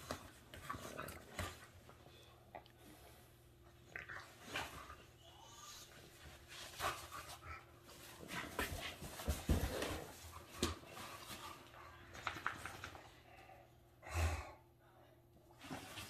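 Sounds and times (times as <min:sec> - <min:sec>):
rustles and knocks of tussling: 0:05.9 - 0:13.0.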